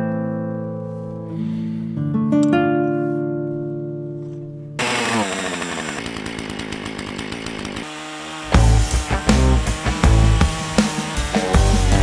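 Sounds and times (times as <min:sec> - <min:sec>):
chainsaw idling: 0:04.8 - 0:12.0.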